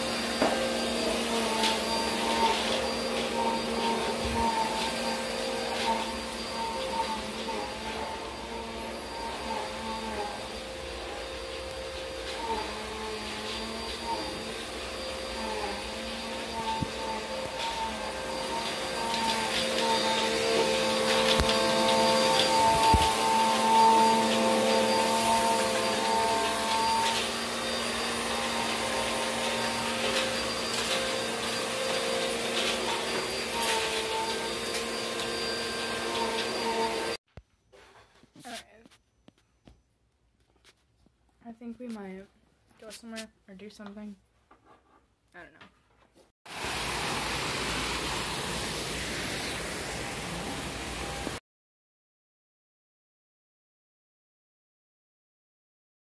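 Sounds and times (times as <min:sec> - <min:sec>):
electric fan whirring: 0:00.0 - 0:37.2.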